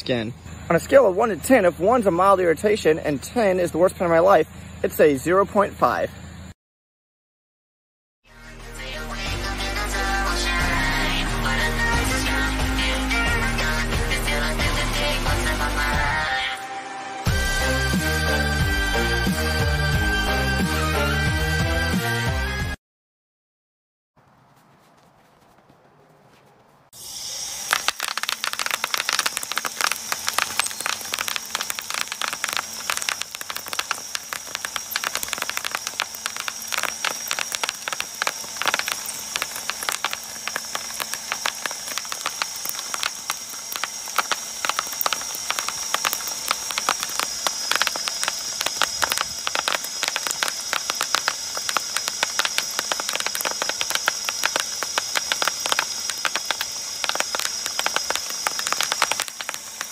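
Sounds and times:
shredder machine whine: 9.3s - 22.8s, 27.0s - 59.9s
bubble wrap popping: 27.6s - 59.9s.

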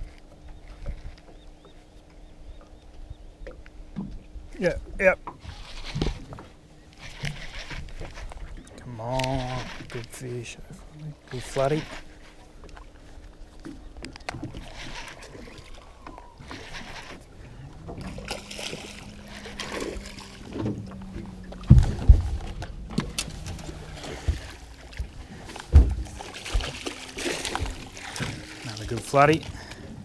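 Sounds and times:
low hum: 0.0s - 30.0s
water splashing: 10.9s - 30.0s.

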